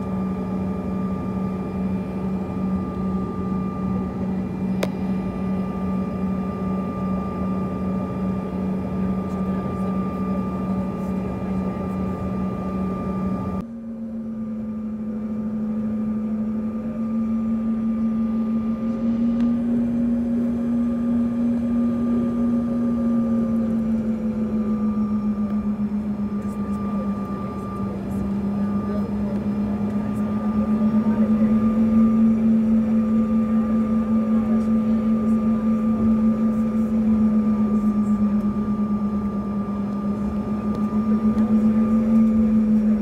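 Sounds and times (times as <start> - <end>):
faint engine whine: 0.0 - 43.0
jet engine hum in cabin: 0.0 - 43.0.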